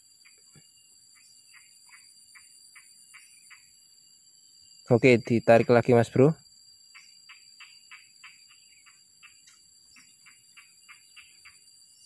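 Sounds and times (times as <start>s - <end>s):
high-pitched insect drone: 0.0s - 12.0s
small animal chirping: 6.9s - 11.8s.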